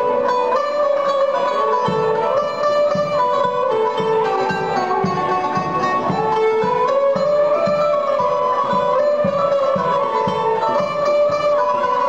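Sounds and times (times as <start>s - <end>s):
low drum beats: 0.0s - 12.0s
violin and plucked strings melody: 0.0s - 12.0s.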